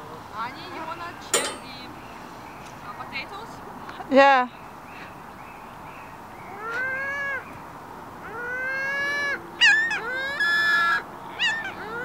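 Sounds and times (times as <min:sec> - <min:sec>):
gulls mewing calls: 0:06.4 - 0:07.6, 0:08.2 - 0:12.0.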